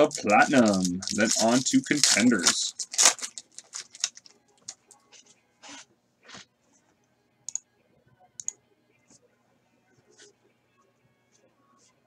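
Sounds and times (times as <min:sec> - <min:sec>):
card and foil wrapper rustles: 0:00.0 - 0:05.8.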